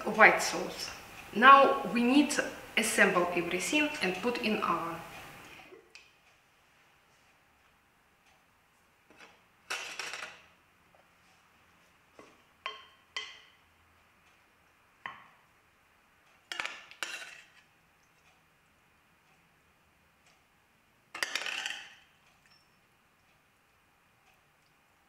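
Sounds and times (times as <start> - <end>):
metal spoon clinking on pan: 12.6 - 13.6, 16.5 - 17.5.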